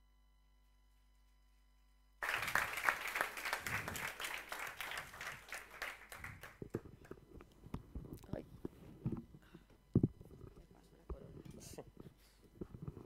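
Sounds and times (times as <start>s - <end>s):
audience applauding: 2.2s - 6.8s.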